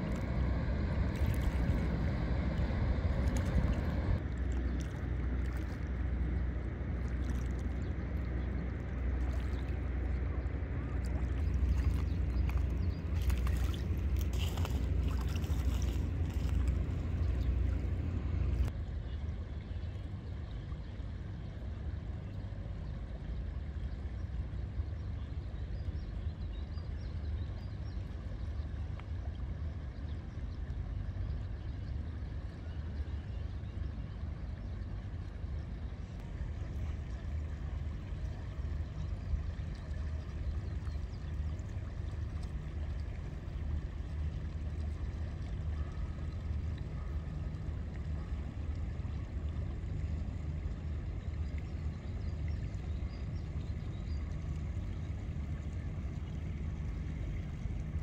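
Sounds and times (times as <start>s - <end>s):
vehicle interior rumble: 0.0s - 18.7s.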